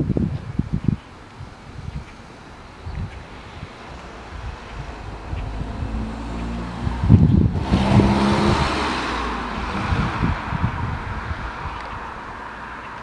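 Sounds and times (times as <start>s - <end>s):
motorcycle engine revving: 3.5s - 11.7s.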